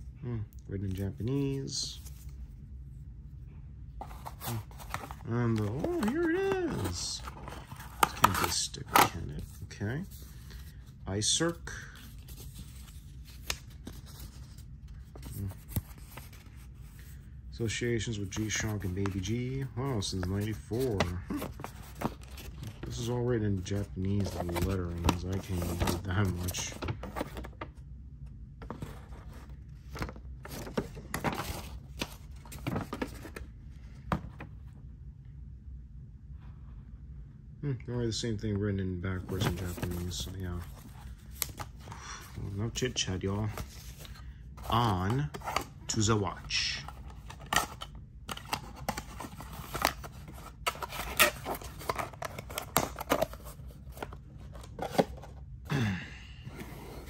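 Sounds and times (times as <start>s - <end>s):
low steady hum: 0.0s - 57.0s
paper rustling and crinkling: 4.0s - 10.9s, 11.8s - 17.2s, 18.1s - 27.7s, 28.6s - 33.4s, 39.2s - 46.0s, 46.7s - 55.4s.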